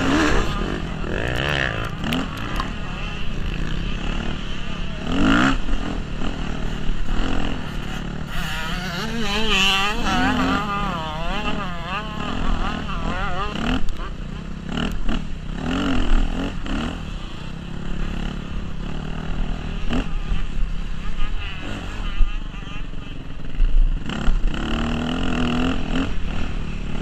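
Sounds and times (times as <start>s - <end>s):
motocross bike engine revving: 0.0s - 27.0s.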